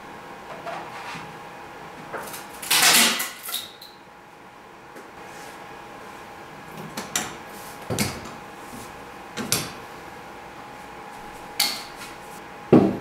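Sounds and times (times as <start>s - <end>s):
faint hum: 3.7s - 13.0s.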